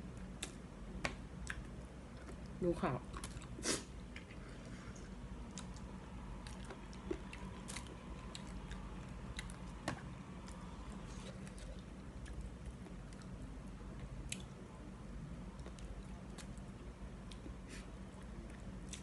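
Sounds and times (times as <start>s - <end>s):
person chewing noodles: 5.5s - 9.7s, 10.4s - 13.4s, 14.2s - 14.5s.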